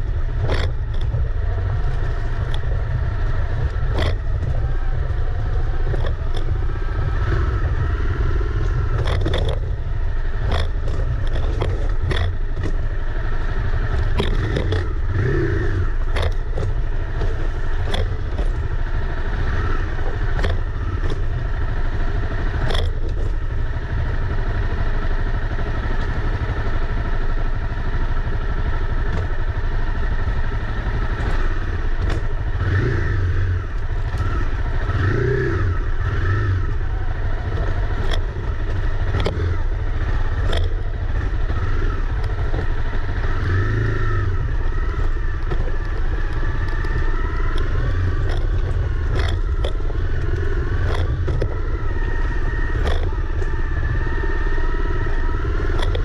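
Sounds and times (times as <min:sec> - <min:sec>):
motorcycle engine running: 0:00.0 - 0:56.0
bike clattering over bumps: 0:44.5 - 0:53.6.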